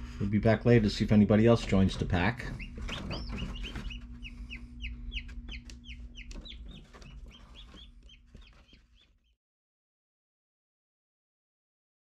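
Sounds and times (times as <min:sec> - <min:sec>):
incubator low hum: 0:00.0 - 0:09.3
chicks peeping: 0:00.3 - 0:09.4.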